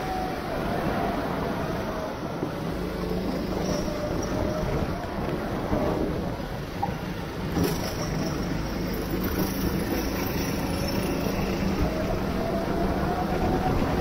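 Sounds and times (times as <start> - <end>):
go-kart engine running: 2.5 - 14.0
wind on microphone: 10.6 - 14.0.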